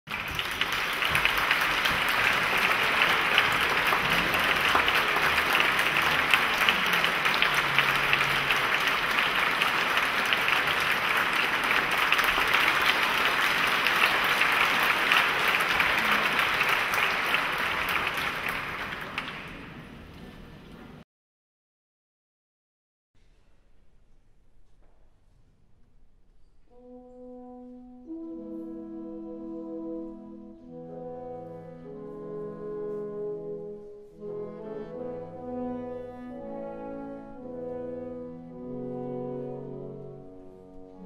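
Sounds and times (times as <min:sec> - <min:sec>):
audience applauding: 0:00.0 - 0:20.4.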